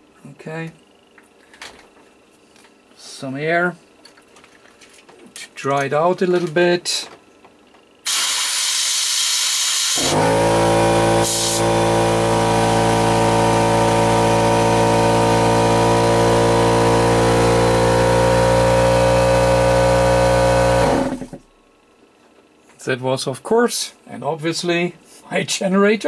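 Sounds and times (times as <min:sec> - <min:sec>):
air hissing: 0:08.0 - 0:12.4
generator humming: 0:08.0 - 0:21.6.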